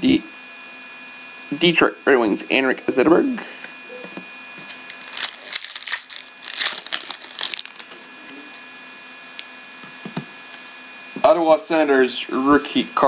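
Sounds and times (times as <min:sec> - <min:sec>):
foil wrapper crinkling: 0:04.7 - 0:08.6.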